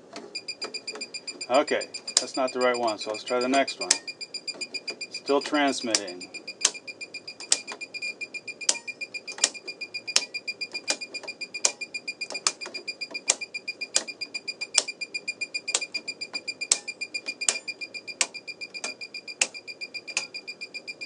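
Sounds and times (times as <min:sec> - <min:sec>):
fast high-pitched beeps: 0:00.4 - 0:21.0.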